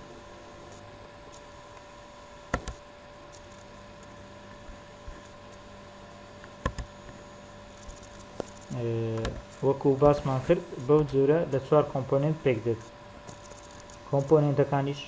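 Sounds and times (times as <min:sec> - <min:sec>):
steady electrical hum: 0:00.0 - 0:15.0
computer mouse clicking: 0:02.5 - 0:04.1, 0:06.4 - 0:07.2.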